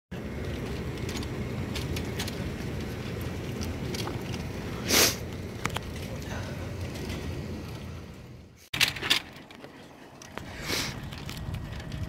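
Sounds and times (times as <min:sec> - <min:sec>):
stretcher casters rolling on asphalt: 0:00.1 - 0:12.0.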